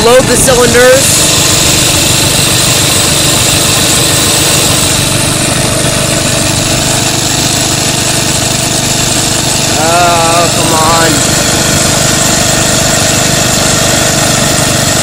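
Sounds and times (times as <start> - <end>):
air compressor pumping: 0.0 - 15.0
small gasoline engine running: 0.0 - 15.0.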